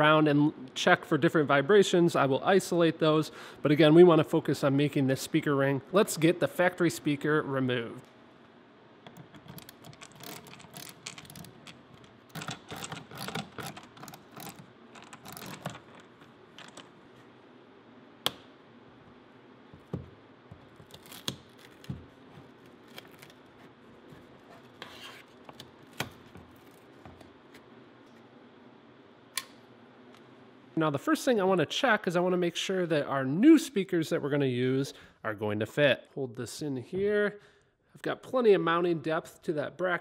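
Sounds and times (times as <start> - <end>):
screwdriver clicking and scraping: 9.1 - 16.9.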